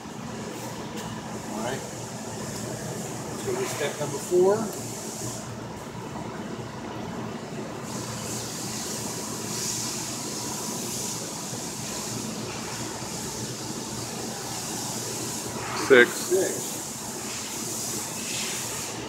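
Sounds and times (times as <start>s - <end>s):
high hiss: 7.8s - 19.0s.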